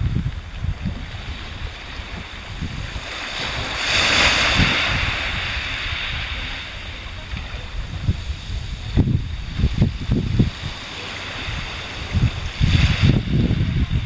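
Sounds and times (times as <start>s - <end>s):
small waves washing in: 0.0s - 14.0s
wind buffeting microphone: 0.0s - 14.0s.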